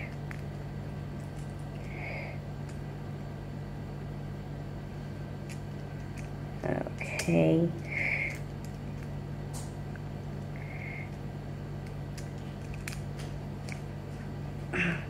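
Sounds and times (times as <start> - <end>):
low hum: 0.0 - 15.0
plastic toy pieces clicking: 8.2 - 9.1, 11.8 - 13.0.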